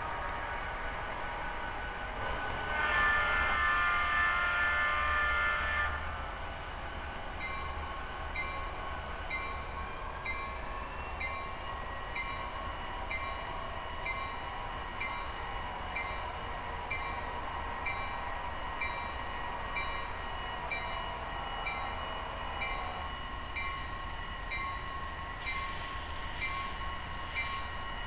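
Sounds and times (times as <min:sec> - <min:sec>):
locomotive horn chord: 0:02.2 - 0:06.1
locomotive bell ringing: 0:07.4 - 0:14.4, 0:15.0 - 0:27.8.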